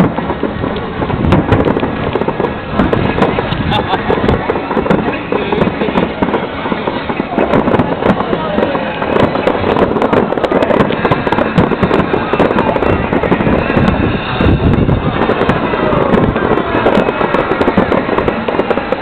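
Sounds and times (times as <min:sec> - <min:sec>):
fireworks bursting: 0:00.0 - 0:19.0.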